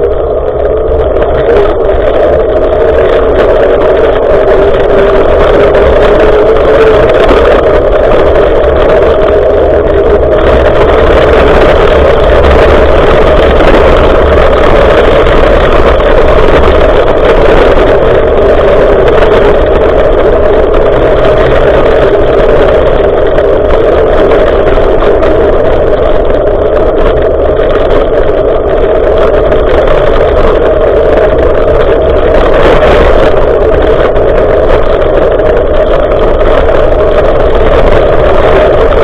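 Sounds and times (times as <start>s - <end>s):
bicycle road noise: 0.0s - 39.0s
wind rumbling on microphone: 0.0s - 39.0s.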